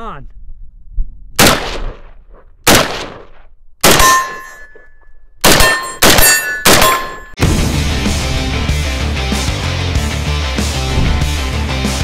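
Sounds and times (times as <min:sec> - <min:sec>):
rifle shots: 0:01.4 - 0:04.5, 0:05.4 - 0:07.3
steel targets ringing: 0:03.9 - 0:07.4.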